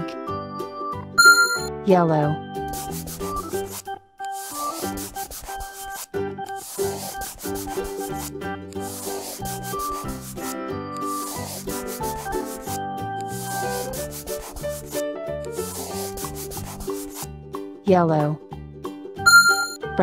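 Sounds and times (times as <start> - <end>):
light background music: 0.0 - 20.0
marker scribbling on paper: 2.7 - 17.3.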